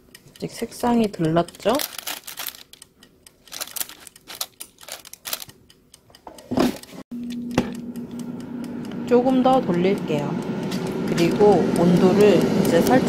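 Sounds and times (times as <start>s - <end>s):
air fryer fan hum: 0.0s - 5.7s, 6.4s - 13.0s.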